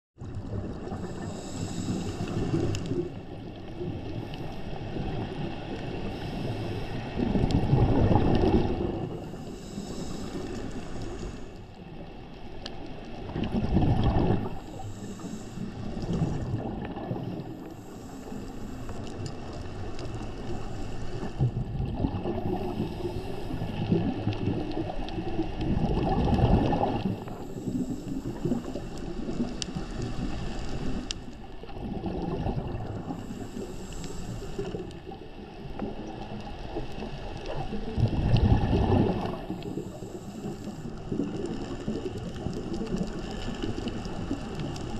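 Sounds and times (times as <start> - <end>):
exhaled bubbles rushing: 0.2 - 4.2, 7.2 - 9.7, 13.2 - 17.8, 20.0 - 33.5, 34.6 - 44.9.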